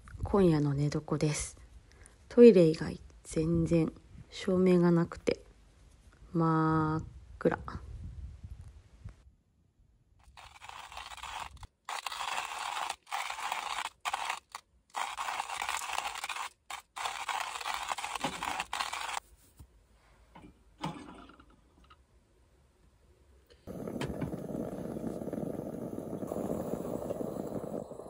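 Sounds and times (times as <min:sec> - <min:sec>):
coffee grinder grinding beans: 0:10.2 - 0:19.2, 0:23.7 - 0:28.0.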